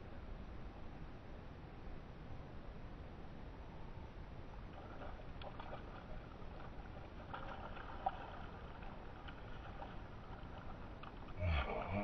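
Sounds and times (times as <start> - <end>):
faint running creek water: 0.0 - 12.0
fish splashing at water surface: 4.7 - 11.4.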